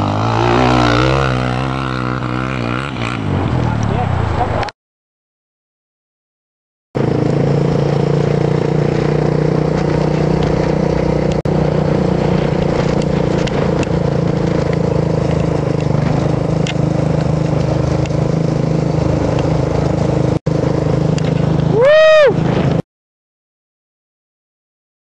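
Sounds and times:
dirt bike engine cruising: 0:00.0 - 0:04.7, 0:07.0 - 0:22.8
wind rushing over microphone: 0:11.5 - 0:22.8.

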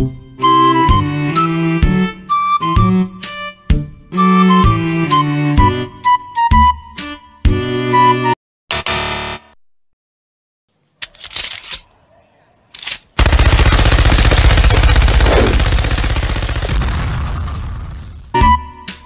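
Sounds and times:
machine gun automatic fire: 0:13.2 - 0:18.0.

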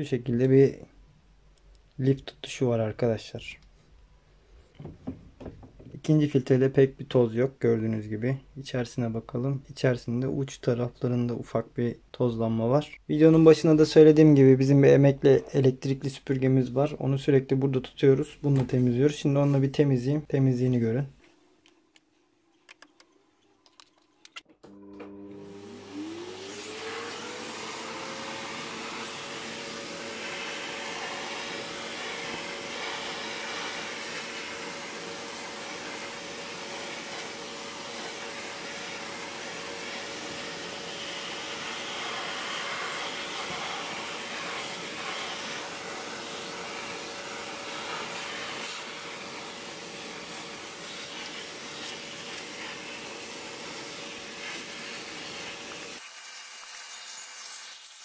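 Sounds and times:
vacuum cleaner motor whine: 0:24.6 - 0:58.0
vacuum nozzle sucking lint: 0:24.7 - 0:58.0.

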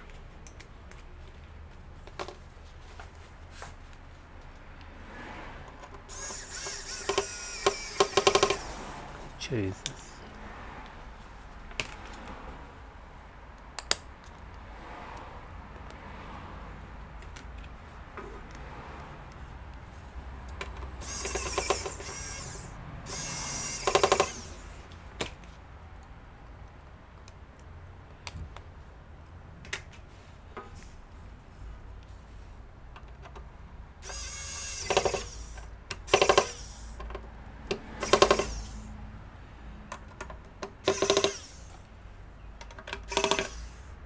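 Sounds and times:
screwdriver clicks and taps: 0:07.1 - 0:08.6, 0:13.5 - 0:14.5, 0:20.4 - 0:22.1.

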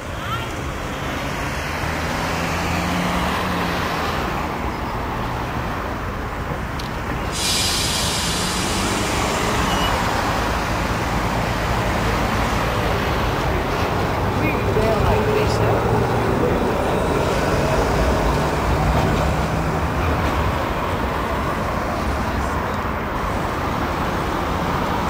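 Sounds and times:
road traffic noise: 0:00.0 - 0:25.0
tram rumbling on track: 0:00.0 - 0:25.0.

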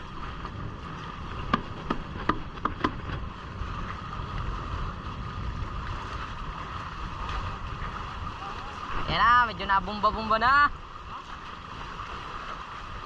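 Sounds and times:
water rushing past hulls: 0:00.0 - 0:13.0
wind buffeting microphone: 0:00.0 - 0:13.0
sharp knocks: 0:01.5 - 0:03.2.

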